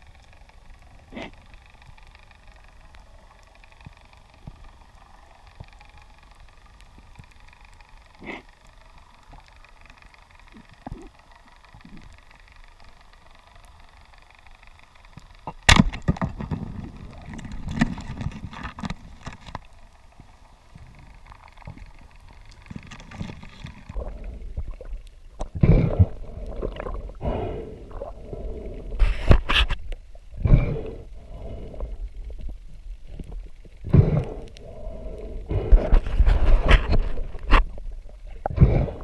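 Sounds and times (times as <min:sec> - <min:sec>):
faint clicks: 0:00.0 - 0:39.0
rumbling clattering handling noise: 0:15.5 - 0:19.7
underwater hiss: 0:25.5 - 0:32.4, 0:33.4 - 0:37.4, 0:38.3 - 0:39.0.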